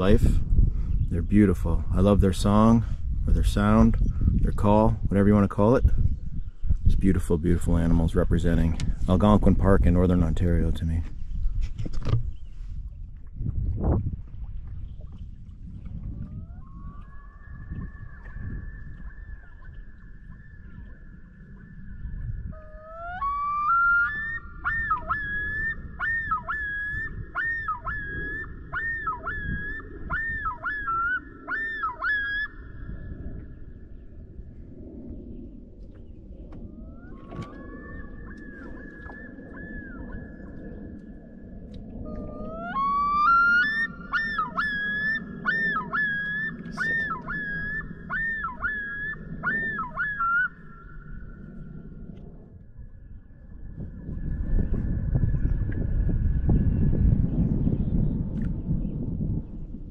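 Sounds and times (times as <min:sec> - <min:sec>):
wind rumble on microphone: 0:00.0 - 0:59.9
loon yodel: 0:22.5 - 0:32.6, 0:42.0 - 0:51.0.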